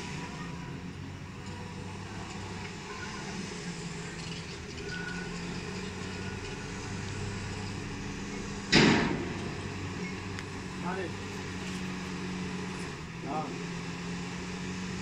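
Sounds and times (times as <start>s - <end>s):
diesel engine droning: 0.0s - 15.0s
loud rushing crash: 8.7s - 9.8s.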